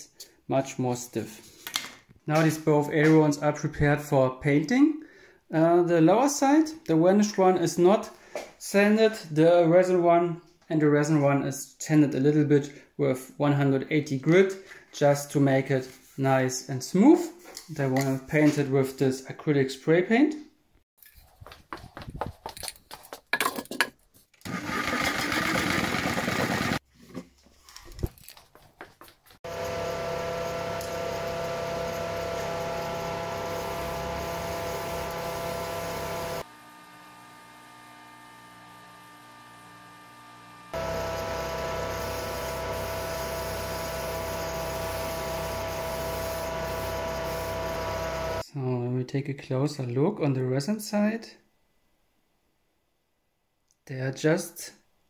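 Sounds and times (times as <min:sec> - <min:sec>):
extractor fan running: 0:29.5 - 0:48.4
spray-paint can hissing: 0:33.3 - 0:36.2, 0:41.2 - 0:48.3.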